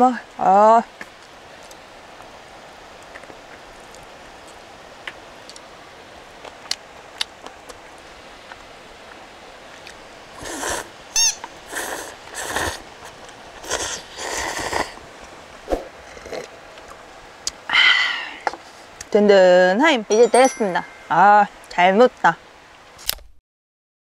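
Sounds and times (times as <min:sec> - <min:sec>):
person slurping noodles: 0:10.4 - 0:10.9, 0:11.7 - 0:15.0, 0:15.7 - 0:16.5.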